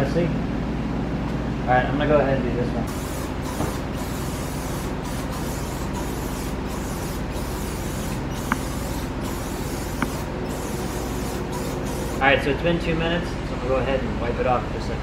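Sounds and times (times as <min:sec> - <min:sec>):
aerosol spray hissing: 0:02.9 - 0:12.2.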